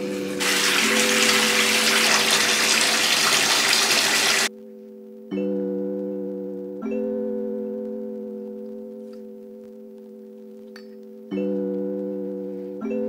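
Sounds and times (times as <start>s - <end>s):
water gushing into bathtub: 0.0s - 4.5s
background music: 0.0s - 13.0s.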